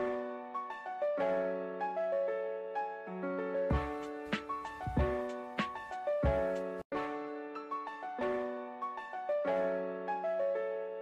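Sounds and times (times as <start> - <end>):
soft piano notes: 0.0 - 11.0.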